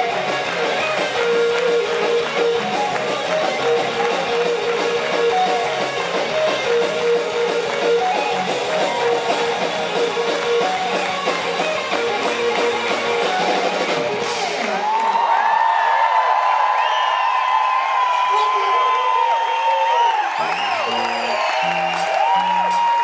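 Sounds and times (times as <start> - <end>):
live band playing polka: 0.0 - 14.8, 20.3 - 23.0
electric guitar: 0.0 - 15.2
hand-clapping: 0.0 - 23.0.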